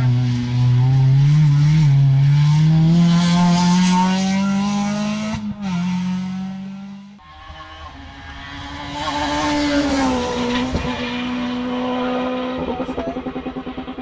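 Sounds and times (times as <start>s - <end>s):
rally car engine passing: 0.0s - 14.0s.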